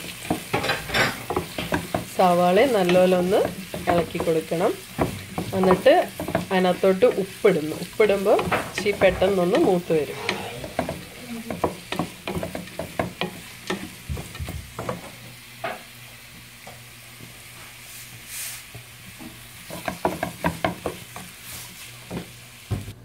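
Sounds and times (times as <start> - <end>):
wooden spatula scraping frying pan: 0.0 - 15.2
onions sizzling in oil: 0.0 - 23.0.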